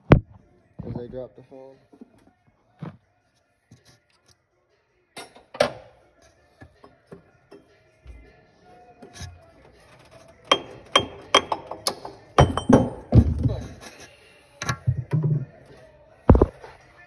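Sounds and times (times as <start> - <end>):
sharp metallic knocks and clinks: 10.5 - 13.6
heavy metal thunk: 12.4 - 13.8.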